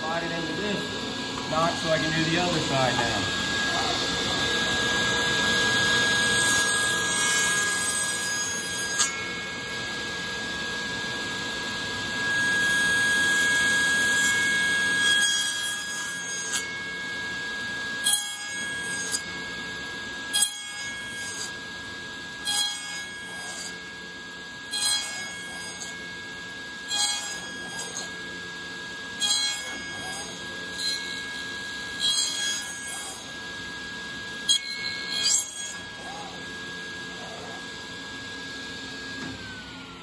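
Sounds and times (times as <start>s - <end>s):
table saw cutting wood: 0.0s - 40.0s
table saw whine: 0.0s - 40.0s.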